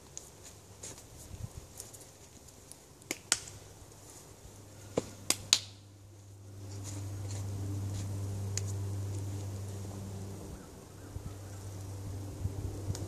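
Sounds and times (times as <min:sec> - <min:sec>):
steady low hum: 0:00.0 - 0:13.0
sharp hand claps: 0:03.1 - 0:03.5, 0:05.2 - 0:05.8.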